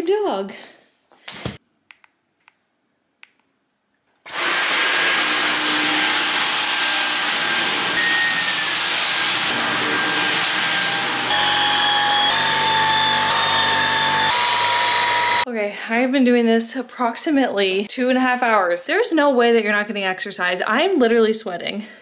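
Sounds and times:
cordless vacuum whirring: 0:04.3 - 0:15.5.

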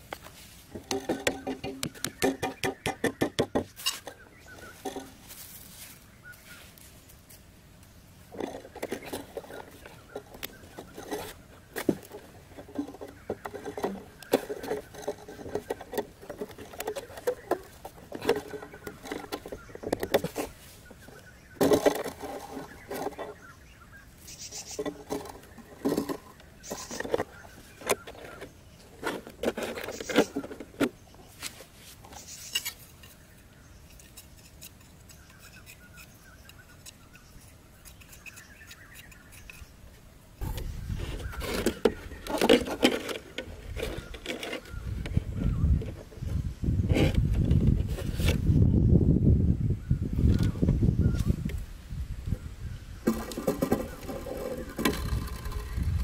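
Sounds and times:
plastic and metal clicks and scrapes: 0:08.3 - 0:23.5, 0:24.5 - 0:33.2, 0:40.4 - 0:48.5, 0:53.0 - 0:56.0.

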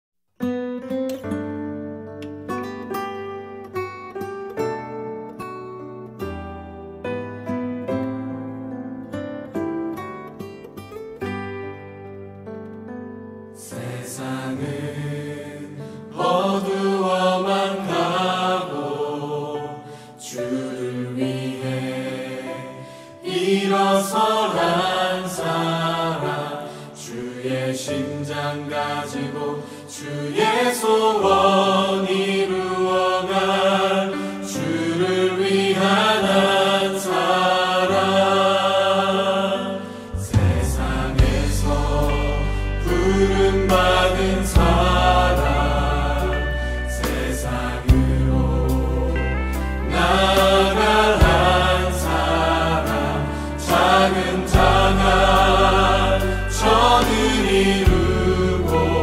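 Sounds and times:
person singing: 0:23.2 - 0:59.0
deep bass: 0:40.2 - 0:47.1, 0:47.9 - 0:52.1, 0:54.3 - 0:59.0.

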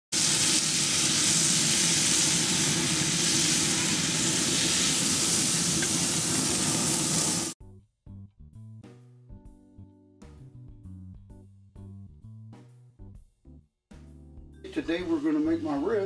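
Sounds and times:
steaks sizzling on a grill: 0:00.1 - 0:07.6.

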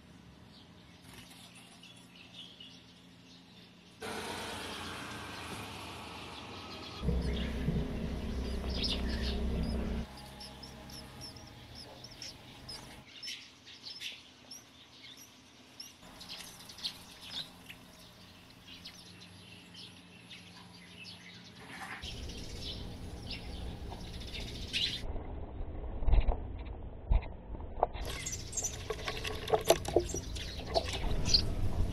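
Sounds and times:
low rumble: 0:06.0 - 0:13.0, 0:22.1 - 0:29.3, 0:30.0 - 0:31.9
nestlings cheeping: 0:07.0 - 0:13.1, 0:28.0 - 0:31.6.

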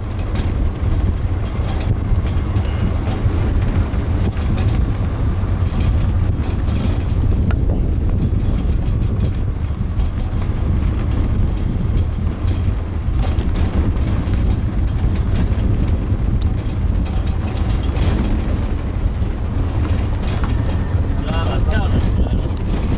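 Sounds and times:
cart rumbling on road: 0:00.0 - 0:22.9
wind buffeting microphone: 0:00.0 - 0:22.9.

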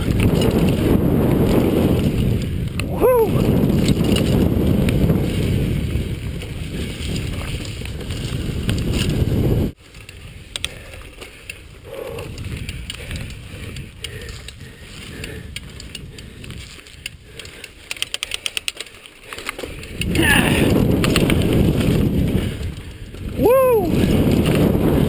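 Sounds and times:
wind rumble on microphone: 0:00.0 - 0:18.7, 0:19.3 - 0:25.0
bike rattling: 0:00.0 - 0:25.0
bicycle freewheel ticking: 0:09.9 - 0:23.2.

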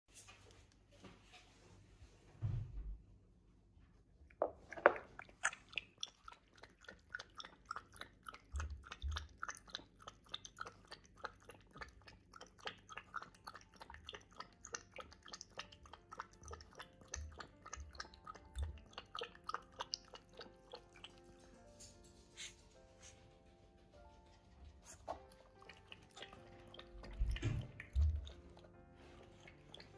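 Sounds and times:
puppy lapping water: 0:04.5 - 0:21.8, 0:24.2 - 0:29.9.

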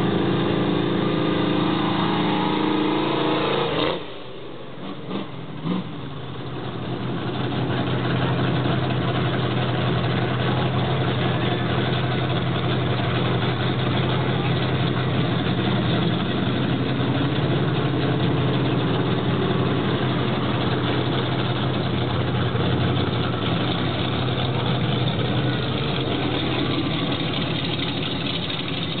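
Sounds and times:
truck engine low drone: 0:00.0 - 0:29.0.

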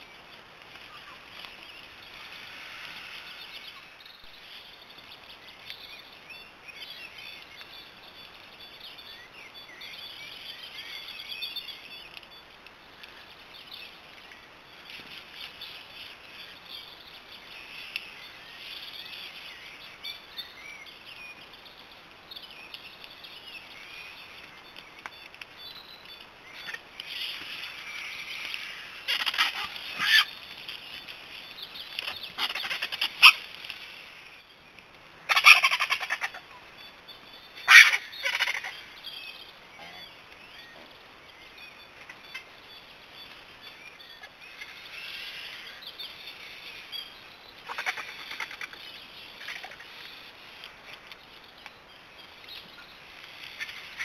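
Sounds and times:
bird chirps: 0:00.0 - 0:33.5, 0:34.2 - 0:54.0
vultures feeding: 0:00.0 - 0:54.0
harsh squabbling vulture calls: 0:28.6 - 0:30.3, 0:32.4 - 0:33.4, 0:35.3 - 0:36.6, 0:37.6 - 0:38.9, 0:47.6 - 0:48.8, 0:49.4 - 0:50.0.

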